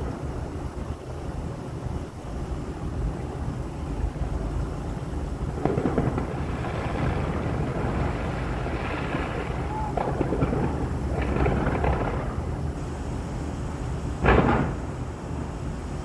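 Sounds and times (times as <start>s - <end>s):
distant fireworks crackling: 3.9s - 16.0s
low rumble: 5.2s - 12.8s
sharp firework reports: 5.4s - 15.8s.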